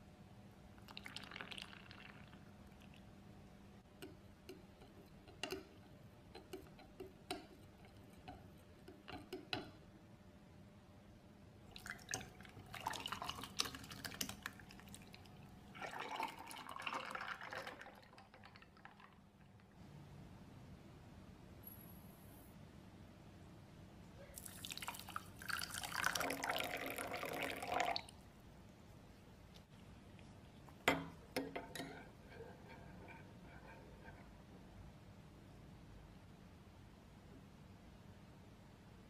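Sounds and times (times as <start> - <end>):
liquid pouring into glass jug: 0.8 - 3.1, 11.7 - 19.7, 24.4 - 28.1.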